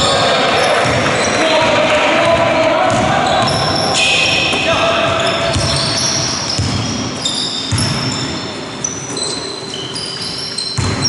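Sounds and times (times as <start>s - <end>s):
trainers squeaking on floor: 0.0s - 1.8s, 3.1s - 11.0s
basketball bouncing on wooden floor: 5.2s - 7.0s, 7.7s - 8.1s, 10.8s - 11.0s.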